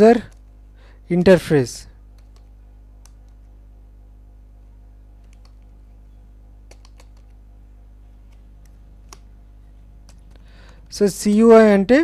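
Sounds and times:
low electrical hum: 0.0s - 12.0s
faint keyboard keystrokes: 2.1s - 3.6s, 5.2s - 5.8s, 6.6s - 7.4s, 10.0s - 10.9s.

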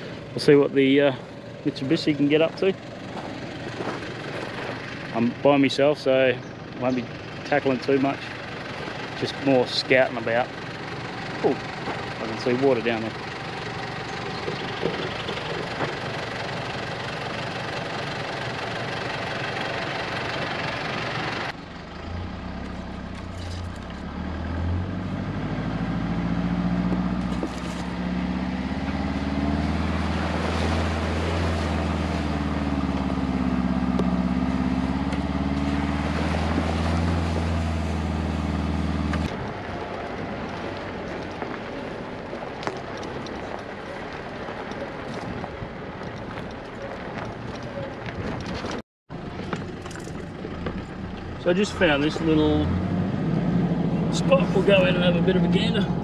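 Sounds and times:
road and body noise: 0.0s - 56.0s
vehicle engine droning: 0.0s - 56.0s.

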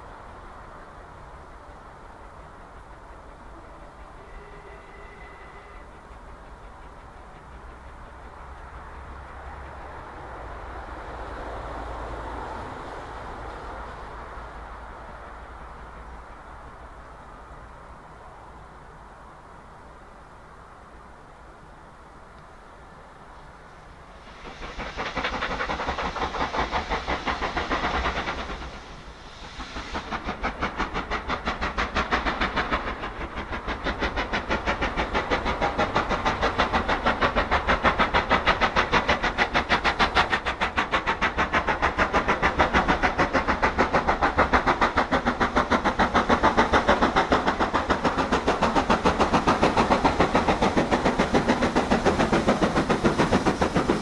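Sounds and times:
steam hissing: 0.0s - 16.9s, 23.7s - 54.0s
steam locomotive exhaust bark: 2.3s - 9.8s.

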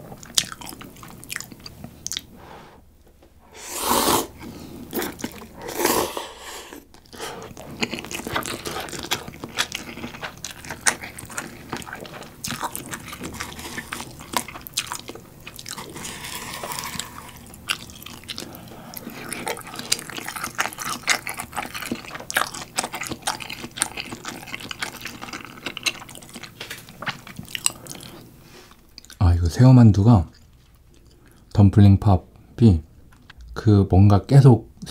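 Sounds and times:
wet chewing: 0.1s - 2.3s, 4.9s - 5.6s, 6.9s - 29.2s
slurping noodles: 3.5s - 14.4s, 15.7s - 25.6s.

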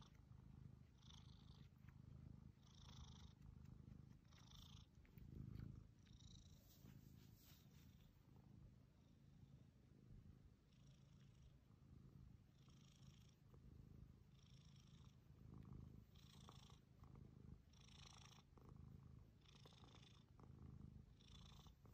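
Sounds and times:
cat purring: 0.0s - 21.9s
soft hissy sound: 0.0s - 21.9s.

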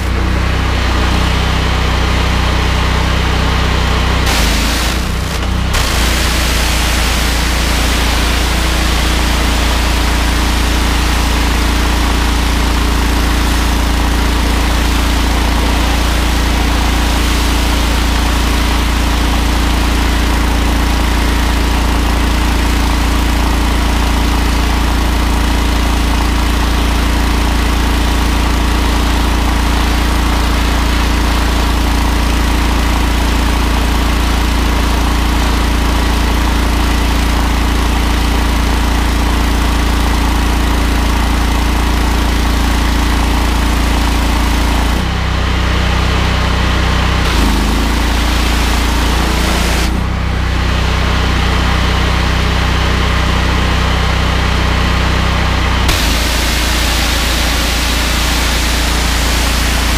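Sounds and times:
petrol engine running under load: 0.0s - 53.6s, 54.3s - 59.9s
high-pressure water jet hissing: 4.2s - 27.1s, 47.3s - 50.0s, 55.9s - 59.9s.

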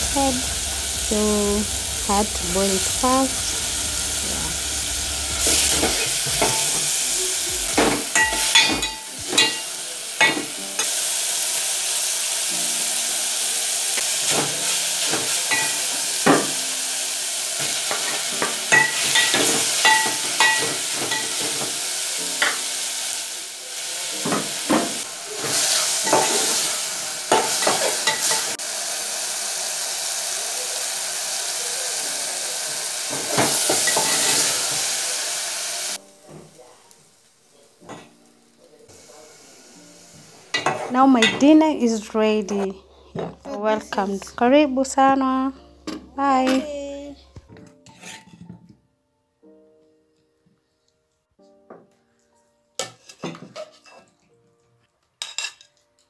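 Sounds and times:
meat and onions sizzling: 0.0s - 47.1s
spoon scraping and knocking pot: 47.6s - 48.7s.

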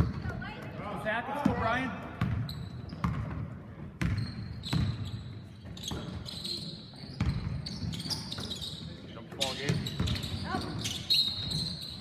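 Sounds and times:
basketball bouncing on hardwood floor: 2.2s - 3.4s, 4.0s - 5.0s.

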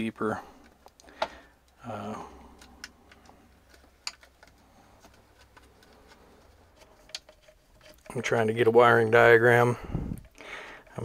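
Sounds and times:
metal parts clicking and tapping: 2.5s - 6.2s, 6.8s - 8.3s.

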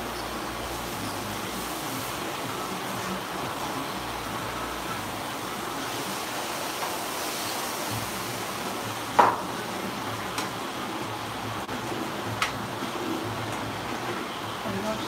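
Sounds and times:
food sizzling in frying pan: 0.0s - 15.0s.

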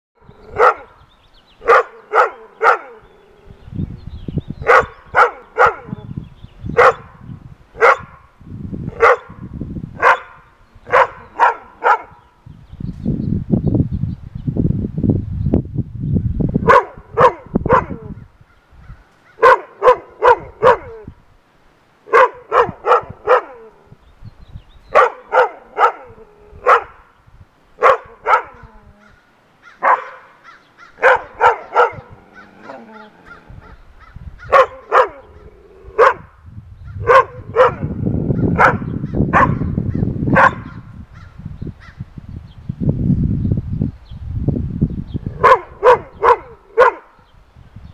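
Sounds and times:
dogs barking: 0.4s - 1.0s, 1.6s - 3.2s, 4.6s - 6.1s, 6.8s - 7.2s, 7.8s - 8.2s, 8.9s - 12.3s, 16.6s - 18.2s, 19.4s - 21.1s, 22.1s - 23.8s, 24.9s - 27.1s, 27.8s - 29.1s, 29.7s - 33.8s, 34.4s - 36.3s, 37.0s - 41.0s, 45.3s - 47.2s.

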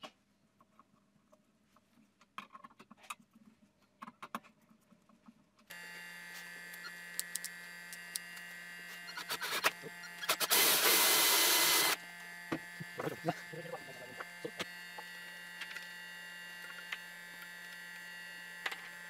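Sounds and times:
electric drill whine: 5.7s - 19.0s
hole saw cutting plastic: 5.7s - 19.0s.

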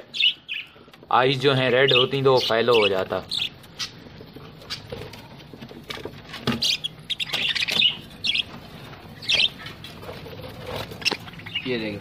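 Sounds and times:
budgerigars chirping: 0.1s - 0.8s, 1.4s - 5.0s, 6.3s - 8.6s, 9.2s - 12.0s.

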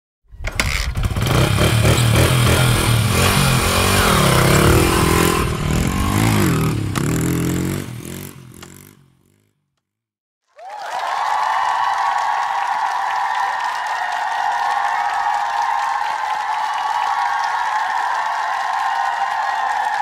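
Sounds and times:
motorcycle engine revving: 0.4s - 9.6s.

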